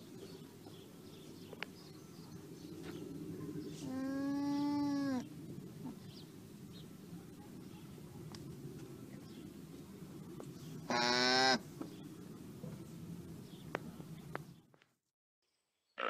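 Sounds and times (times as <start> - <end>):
alpaca calling: 3.8 - 5.2, 10.8 - 11.6.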